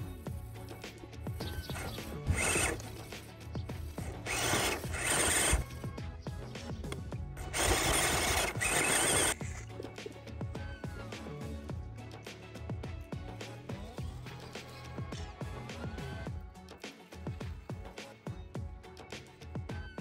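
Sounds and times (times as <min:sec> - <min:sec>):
electric motor whirring: 0:01.4 - 0:05.8, 0:07.4 - 0:09.6
tyres grinding over dirt: 0:01.5 - 0:03.2, 0:03.8 - 0:05.7, 0:07.4 - 0:09.6.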